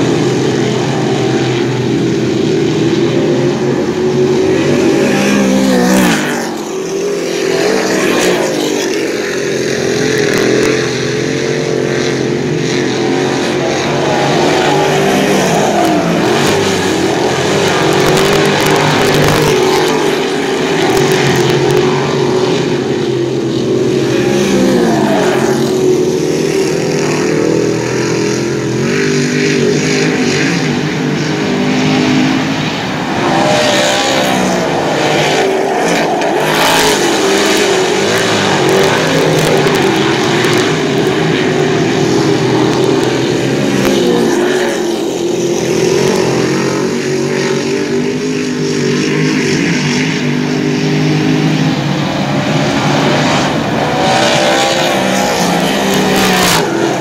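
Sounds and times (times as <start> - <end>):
race car engines: 0.0 - 57.0.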